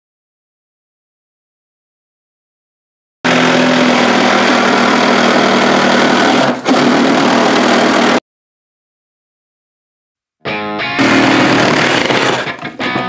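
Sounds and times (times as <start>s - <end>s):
reciprocating saw cutting wood: 3.3s - 8.2s, 11.0s - 12.7s.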